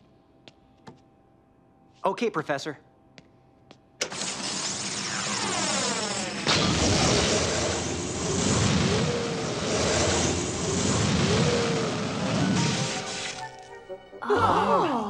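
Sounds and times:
laser beam hiss: 4.0 - 13.6
wavering whistles: 8.6 - 13.9.

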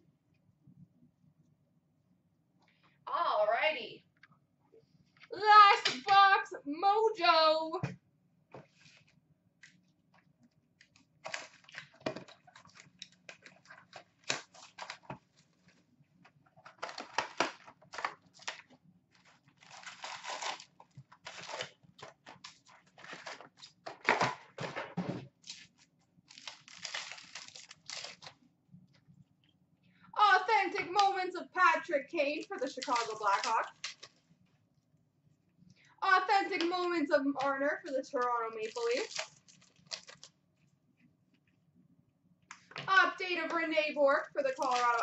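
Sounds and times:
wrappers tearing and crinkling: 10.8 - 15.7, 16.6 - 24.2, 25.4 - 28.4, 32.6 - 34.2, 38.5 - 40.4, 44.4 - 45.0.

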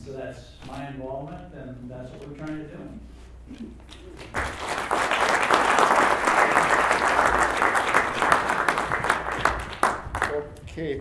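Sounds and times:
audience applauding: 4.2 - 10.4.

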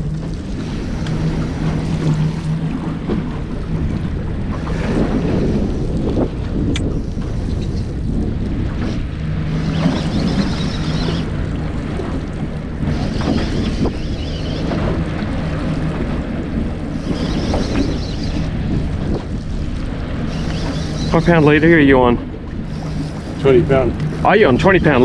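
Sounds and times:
outboard motor humming: 0.0 - 25.0
water washing against hull: 0.0 - 25.0
wind buffeting microphone: 0.0 - 25.0.

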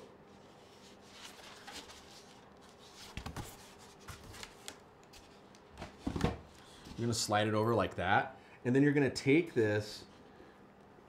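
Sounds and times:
cardboard rustling and scraping: 0.4 - 7.1.

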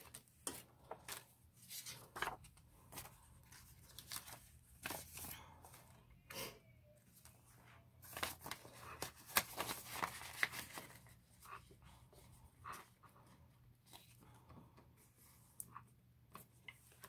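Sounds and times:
banknote and plastic pouch crinkling: 8.0 - 11.1.

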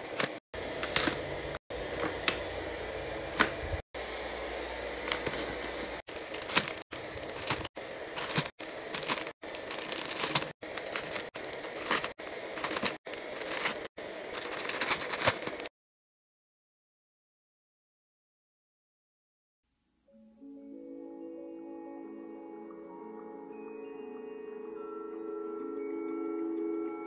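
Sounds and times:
plastic food packets crinkling: 0.0 - 2.4, 5.1 - 15.7.

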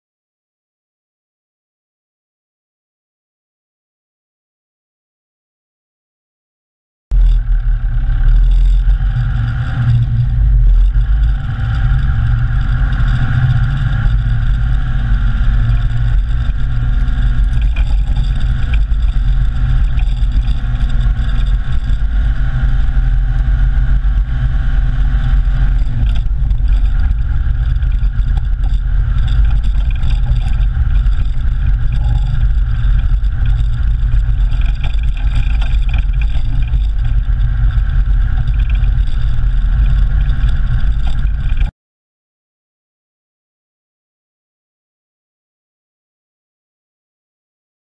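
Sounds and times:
vehicle rumbling over dirt track: 7.1 - 41.7.

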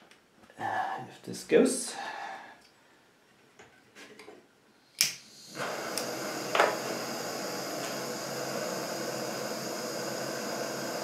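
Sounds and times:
blowtorch flame hissing: 5.0 - 11.0
blowtorch ignition click: 5.0 - 11.0.

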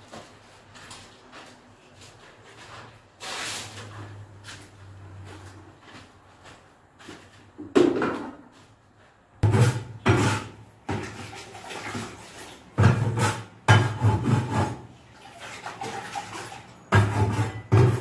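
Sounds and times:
mortar scraping in plastic bucket: 9.4 - 18.0.

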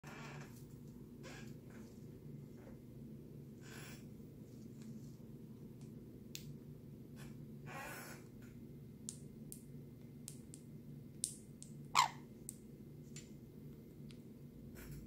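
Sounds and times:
parrot squeak: 12.0 - 12.2.

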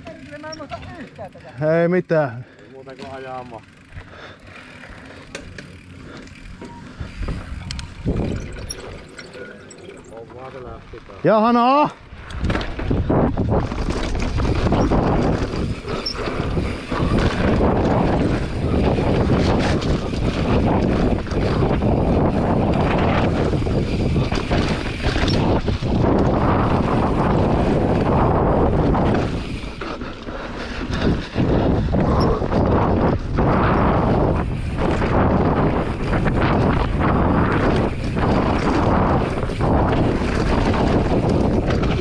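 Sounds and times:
wind buffeting microphone: 5.8 - 9.1, 12.0 - 42.0.

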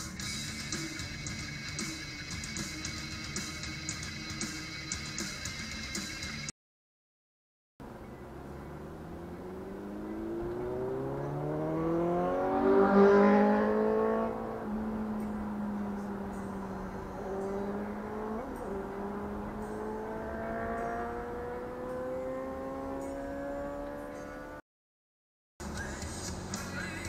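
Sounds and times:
vehicle engine accelerating: 7.8 - 24.6, 25.6 - 27.0.

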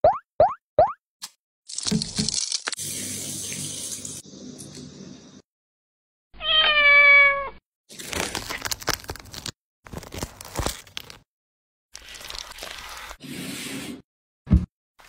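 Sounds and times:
husk crackling and tearing: 1.7 - 2.8, 7.9 - 11.3
cat meowing: 6.4 - 7.6.

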